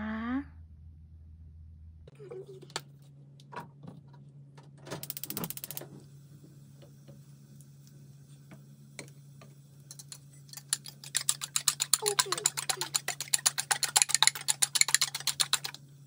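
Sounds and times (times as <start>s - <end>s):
fast even clicking: 5.0s - 5.8s, 9.9s - 15.8s
chopsticks beating eggs in bowl: 9.9s - 15.8s.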